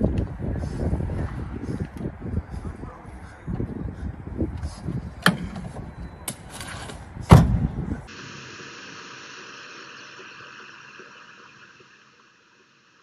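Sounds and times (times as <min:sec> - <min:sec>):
car cabin and road hiss: 0:08.1 - 0:13.0.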